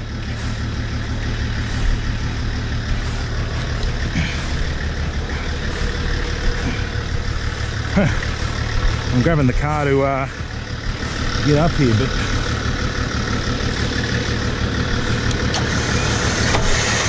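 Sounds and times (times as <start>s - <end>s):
diesel engine idling: 0.0s - 17.0s
electric winch pulling: 10.8s - 17.0s.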